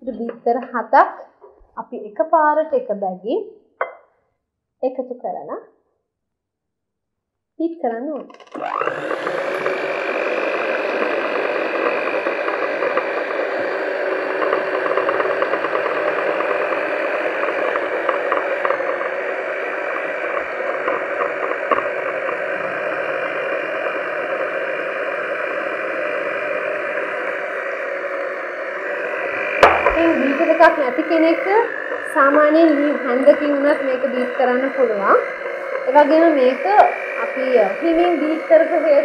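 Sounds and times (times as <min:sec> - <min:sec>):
electric hand mixer running: 0:08.3 - 0:39.0.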